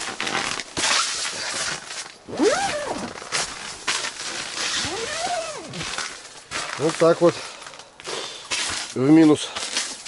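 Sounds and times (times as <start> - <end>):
rustling and crunching: 0.0 - 10.0
short rising squeaks: 2.3 - 3.3, 4.5 - 5.8.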